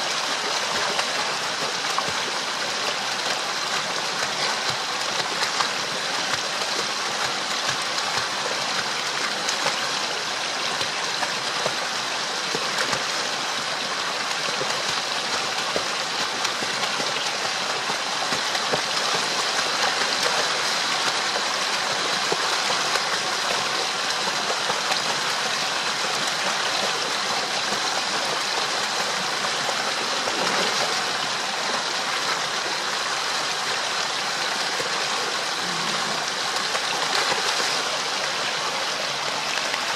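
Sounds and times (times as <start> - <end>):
waterfall rushing and splashing: 0.0 - 39.9.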